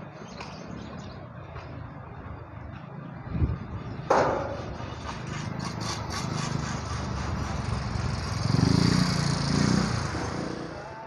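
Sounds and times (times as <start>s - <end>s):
vehicle engine passing: 3.6s - 10.9s.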